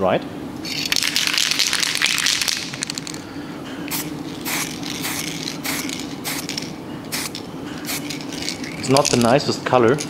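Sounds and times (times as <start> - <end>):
spray paint can hissing: 3.9 - 9.2.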